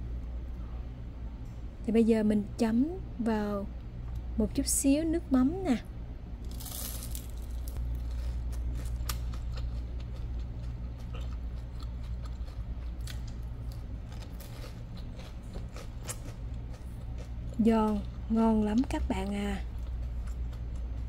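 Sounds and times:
steady low hum: 0.0 - 21.0
crunching while chewing: 6.5 - 18.3, 19.6 - 21.0.

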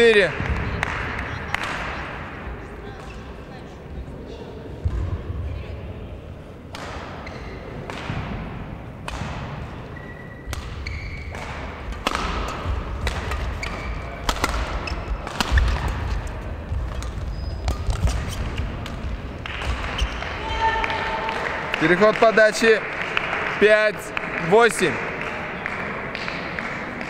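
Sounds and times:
rackets striking shuttlecock: 6.7 - 9.8, 10.5 - 20.4
shoe squeaks: 7.2 - 7.7, 9.8 - 11.4, 13.4 - 15.6, 17.0 - 18.8, 19.9 - 20.7.

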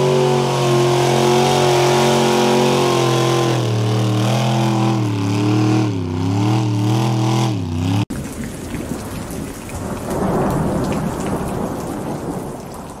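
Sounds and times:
truck engine running hard: 0.0 - 8.1.

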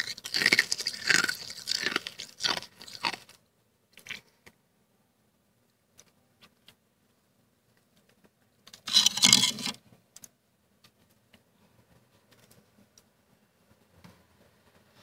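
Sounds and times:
crunchy frost scrape: 0.0 - 3.4, 8.9 - 9.8
frost clicks and crackles: 0.0 - 3.4.

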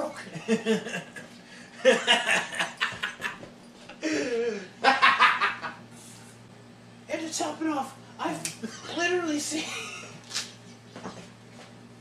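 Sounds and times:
men laughing: 0.3 - 5.9.

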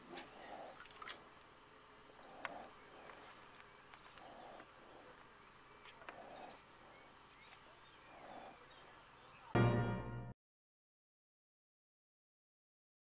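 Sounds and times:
small birds chirping: 0.0 - 9.6.

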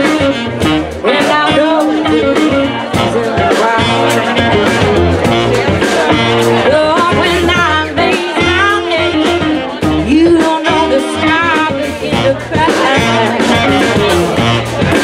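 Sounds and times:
band with upright bass and drums: 0.0 - 15.0
woman singing with vibrato: 1.0 - 3.5, 6.6 - 14.2.

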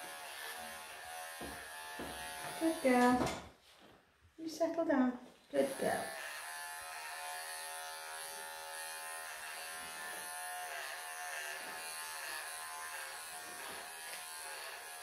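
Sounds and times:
pet clippers buzzing: 0.0 - 3.3, 5.6 - 15.0.

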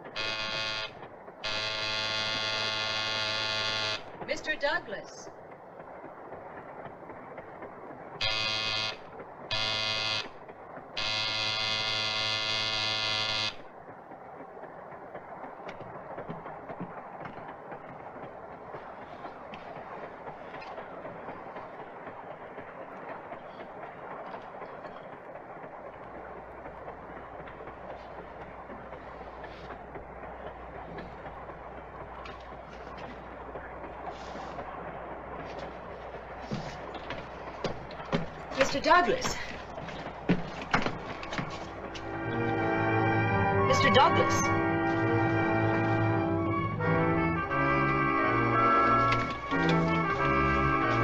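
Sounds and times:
low steady hum: 0.0 - 51.0
train horn blasts: 0.2 - 4.1, 8.2 - 10.3, 11.0 - 13.6, 42.0 - 51.0
train rumbling and rattling: 13.6 - 51.0.

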